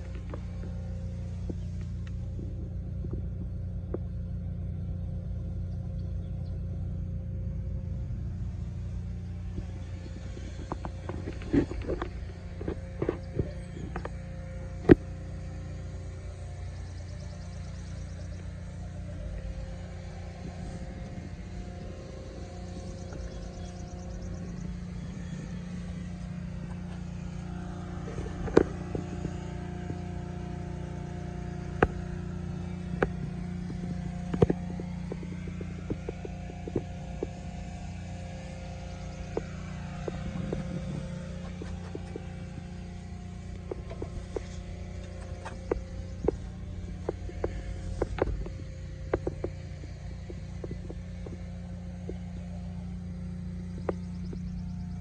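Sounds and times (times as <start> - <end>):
diesel engine idling: 0.0 - 55.0
sharp clicks and knocks: 9.5 - 30.5, 31.6 - 54.9.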